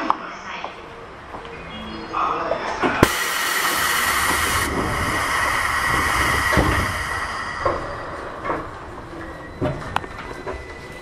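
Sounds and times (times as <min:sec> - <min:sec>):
compressed air hiss: 0:03.0 - 0:09.1
steady high tone: 0:03.0 - 0:11.0.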